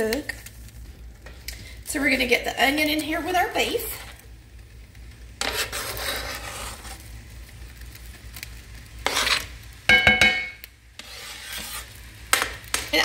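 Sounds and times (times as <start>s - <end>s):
metal utensil scraping cutting board: 5.4s - 7.0s, 9.0s - 9.5s, 11.0s - 12.0s
utensil clanking against skillet: 9.0s - 12.8s.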